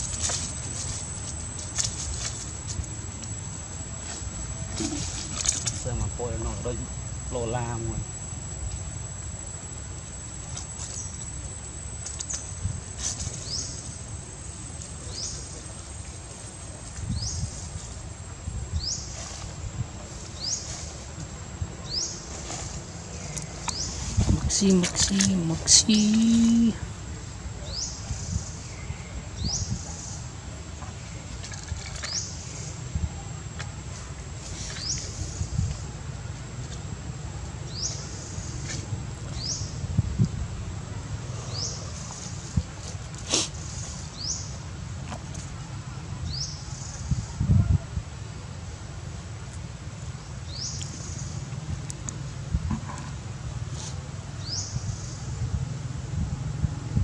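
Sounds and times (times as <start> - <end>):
high-pitched whine: 0.0 - 30.2.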